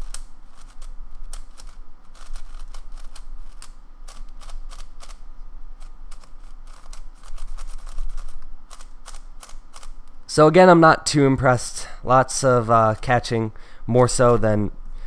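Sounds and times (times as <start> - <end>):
plastic puzzle cube clicking: 0.0 - 5.2, 5.8 - 10.2.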